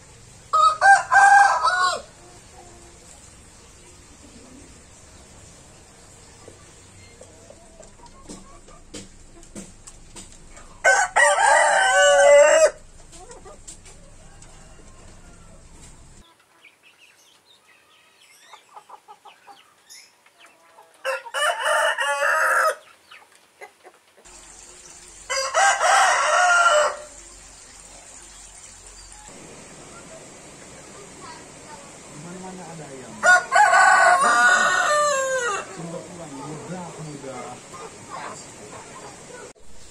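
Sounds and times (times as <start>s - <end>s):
rooster crowing: 0.5s - 2.3s, 10.6s - 16.2s, 21.0s - 22.8s, 25.2s - 27.3s, 33.1s - 36.1s.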